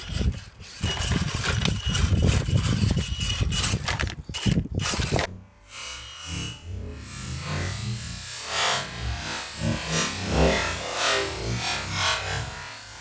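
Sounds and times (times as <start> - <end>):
tyres scrabbling on stone: 0.0 - 5.3
electric motor and gears whining: 0.0 - 13.0.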